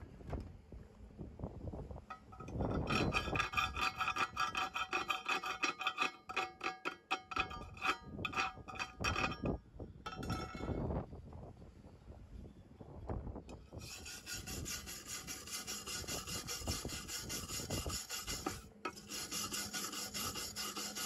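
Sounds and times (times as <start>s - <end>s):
hollow metal tube ringing: 2.1s - 10.8s
hammer scraping slag: 2.4s - 9.4s, 13.8s - 21.0s.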